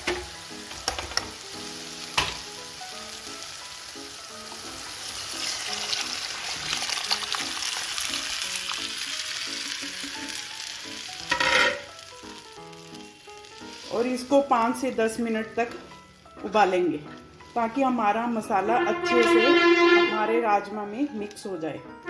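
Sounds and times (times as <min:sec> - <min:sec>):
oil sizzling in a pan: 0:00.0 - 0:19.3
background music: 0:00.0 - 0:22.0
liquid pouring into pan: 0:05.1 - 0:10.4.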